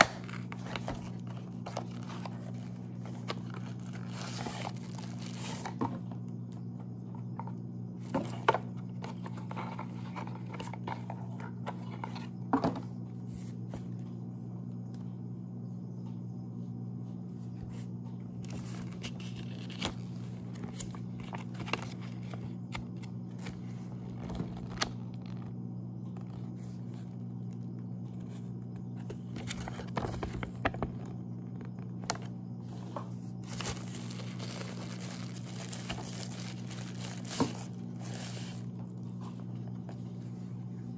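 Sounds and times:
plastic packaging crinkling: 0.0 - 5.8, 33.4 - 39.1
steady low hum: 0.0 - 40.9.

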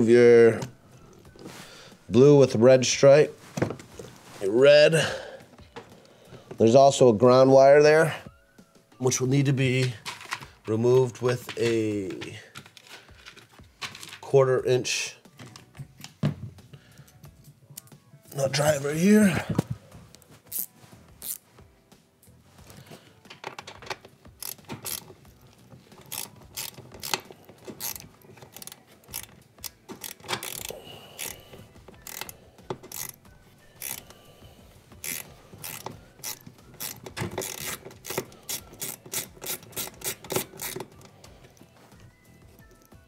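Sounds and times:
ratchet clicking: 20.5 - 21.4, 24.4 - 25.3, 26.0 - 33.2, 33.8 - 34.2, 35.0 - 41.1.

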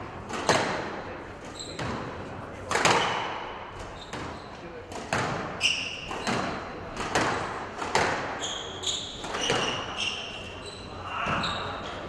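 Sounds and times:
squash ball struck by racket: 0.2 - 1.0, 1.6 - 10.2
shoe squeaks on court floor: 1.5 - 2.0, 4.0 - 4.6, 5.6 - 6.6, 8.2 - 12.0.

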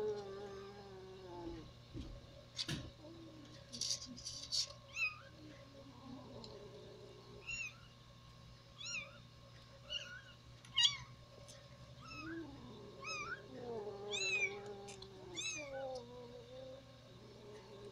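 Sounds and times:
kittens mewing: 12.0 - 17.9.

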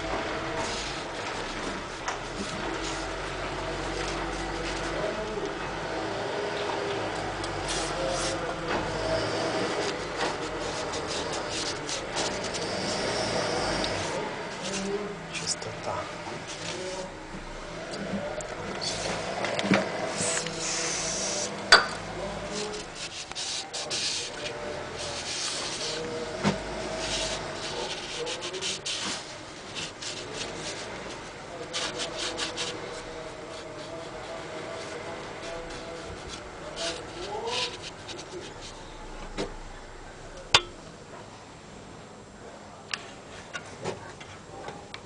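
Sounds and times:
scraping and rubbing on metal: 0.0 - 5.8, 7.6 - 17.8, 22.4 - 39.0.

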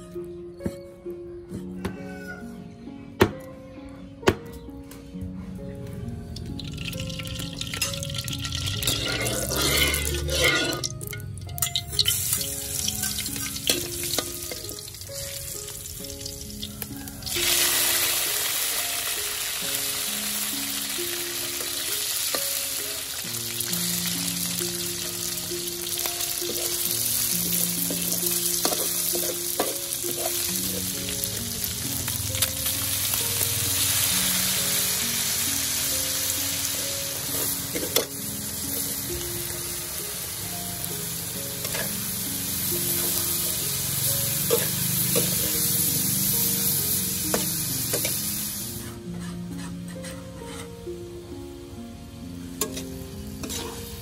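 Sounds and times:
quiet background music: 0.0 - 54.0
garlic sizzling in oil: 6.6 - 49.3, 52.5 - 54.0
metal spatula scraping pan: 8.8 - 11.1, 49.1 - 50.7, 52.6 - 54.0.

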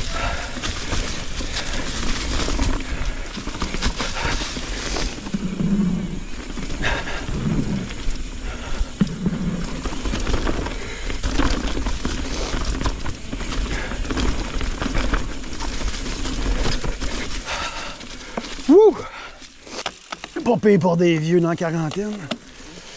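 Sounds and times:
rider breathing hard: 0.0 - 20.1, 22.4 - 22.9
bike knocking and rattling: 0.0 - 22.9
bike tyres rolling over leaves: 0.0 - 22.9.

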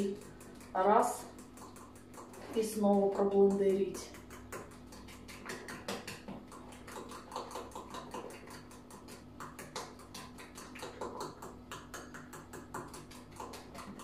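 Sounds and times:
utensil stirring batter in bowl: 0.0 - 14.0.

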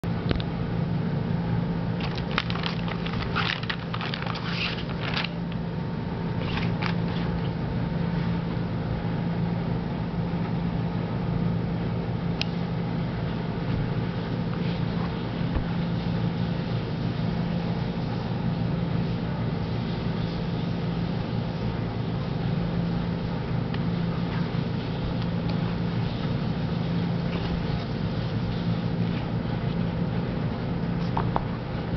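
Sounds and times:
steady mechanical hum: 0.0 - 31.9
crackling bursts: 2.0 - 5.6.

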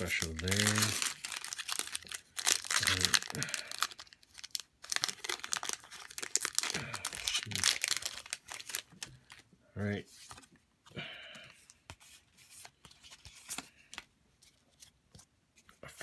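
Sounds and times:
foil wrapper crinkling and tearing: 0.0 - 9.4.

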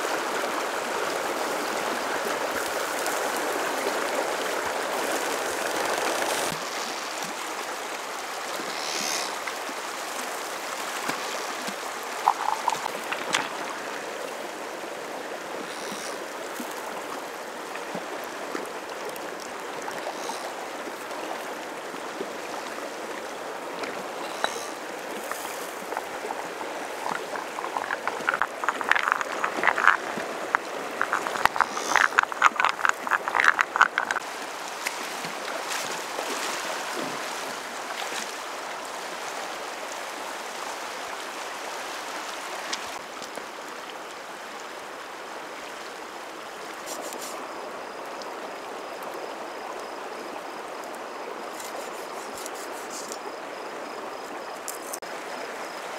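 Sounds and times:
stream running: 0.0 - 55.9
frog croaking: 8.6 - 9.4, 12.1 - 13.8, 15.6 - 16.3, 20.0 - 20.6, 24.1 - 34.2.

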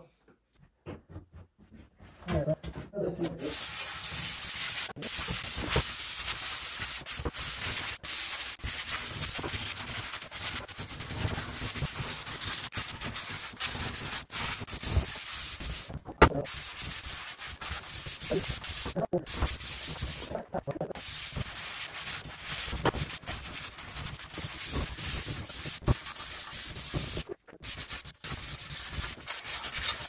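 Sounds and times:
sanding metal: 3.4 - 30.0.

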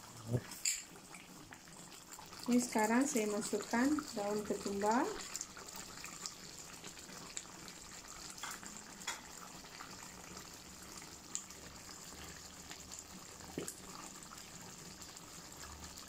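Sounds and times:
curry bubbling in a pan: 0.0 - 16.0.

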